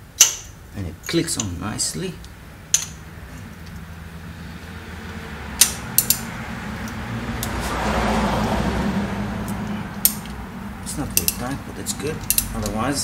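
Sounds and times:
socket wrench clicking: 5.6 - 7.6, 11.1 - 11.4, 12.2 - 12.8.

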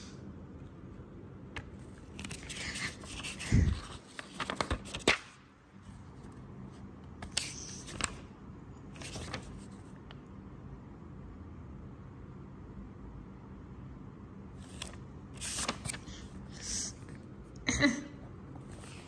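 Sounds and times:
notebook pages rustling: 1.8 - 8.3, 9.0 - 9.9, 14.6 - 16.4.

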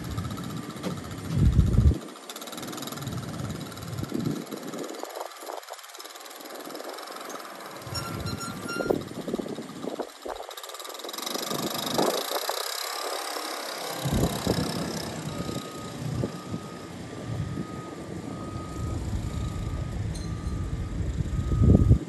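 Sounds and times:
heavy equipment engine rumbling: 0.0 - 22.0
steady repeating beep: 7.9 - 9.0, 14.5 - 22.0.

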